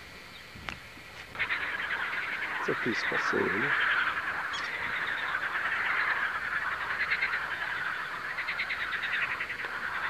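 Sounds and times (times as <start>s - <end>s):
frogs trilling: 0.0s - 10.0s.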